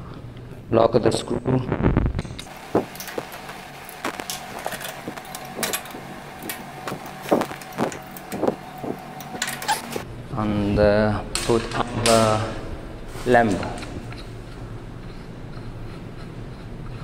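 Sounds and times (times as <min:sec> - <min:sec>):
faint steady hum: 0:00.0 - 0:17.0
hand tools clicking on metal frame: 0:04.1 - 0:10.0.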